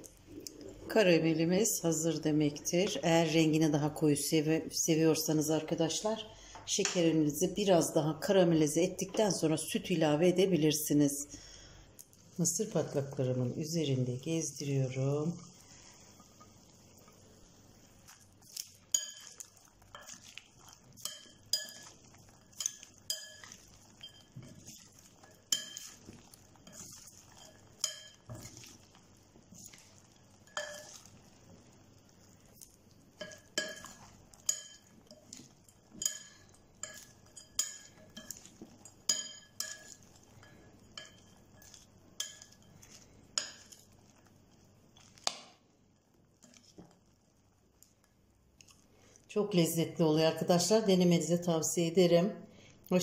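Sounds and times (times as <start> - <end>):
metal spoon clinking glass bowl: 18.6 - 28.7, 29.7 - 31.2, 33.2 - 43.9.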